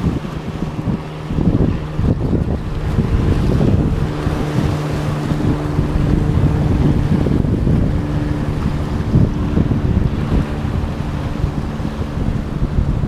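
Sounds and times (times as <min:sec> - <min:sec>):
propeller plane engine overhead: 0:00.0 - 0:13.0
surf washing against rocks: 0:00.0 - 0:13.0
wind buffeting microphone: 0:00.0 - 0:13.0.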